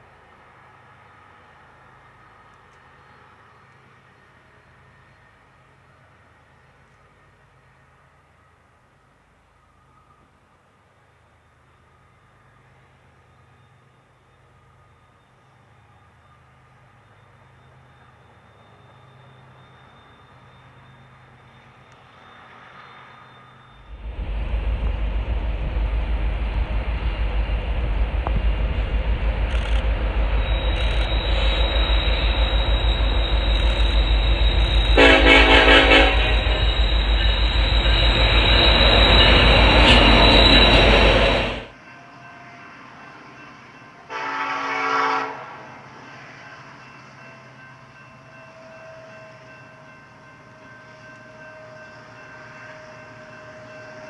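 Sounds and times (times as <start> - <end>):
diesel locomotive engine rumble: 0.0 - 42.0
quieter train rumble: 0.0 - 54.0
train horn blast: 34.6 - 37.2, 44.1 - 45.8.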